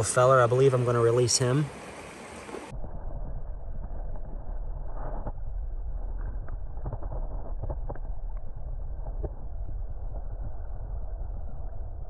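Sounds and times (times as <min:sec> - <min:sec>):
underwater creek current: 0:00.0 - 0:12.0
small underwater clicks: 0:06.2 - 0:09.5.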